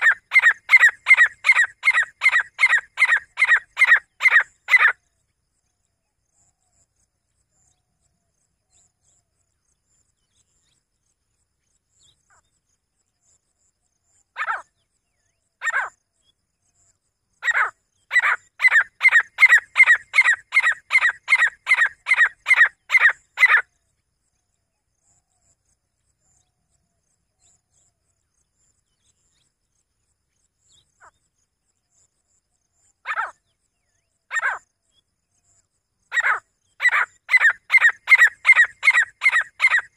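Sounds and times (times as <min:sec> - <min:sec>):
francolin calling: 0:00.0 - 0:05.0, 0:17.4 - 0:23.7, 0:33.0 - 0:33.4, 0:34.3 - 0:34.6, 0:36.1 - 0:39.9.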